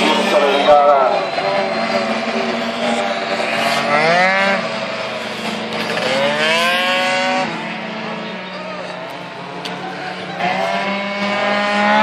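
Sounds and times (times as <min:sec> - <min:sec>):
scooter engines revving: 0:00.0 - 0:12.0.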